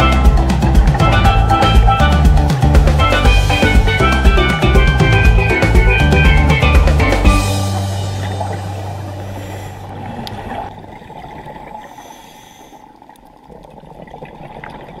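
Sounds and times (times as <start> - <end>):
background music with bass: 0.0 - 10.7
muffled underwater water rush: 6.8 - 15.0.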